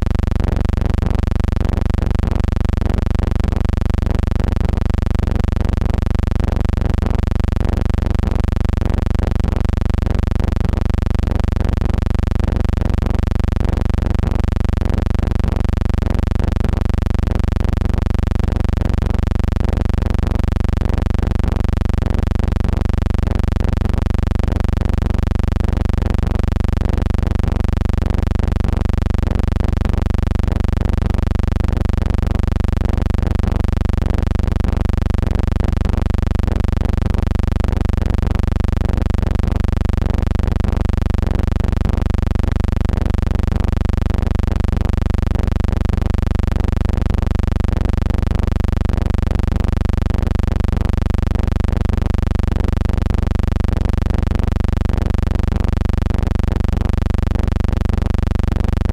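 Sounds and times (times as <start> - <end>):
steady low pulsing hum: 0.0 - 26.5.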